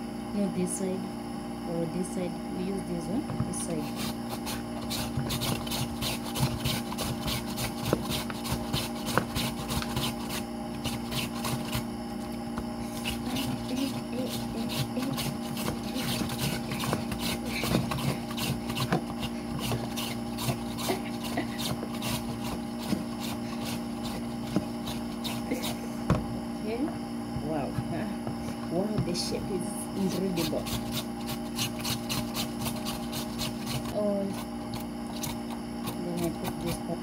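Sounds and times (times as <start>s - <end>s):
potato rasping on grater blade: 3.6s - 11.9s, 12.8s - 25.8s, 30.0s - 37.0s.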